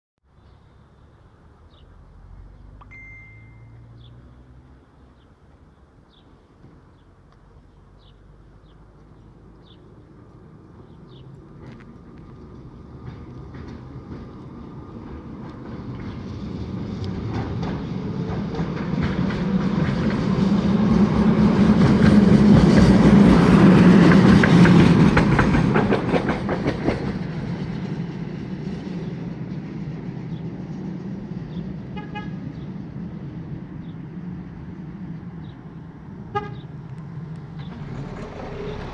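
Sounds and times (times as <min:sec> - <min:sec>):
tram motor hum and wheel noise: 0:00.6 - 0:38.9
wheels clattering over rails: 0:12.5 - 0:28.2, 0:37.4 - 0:38.9
tram horn toots: 0:31.9 - 0:32.5, 0:36.3 - 0:36.7.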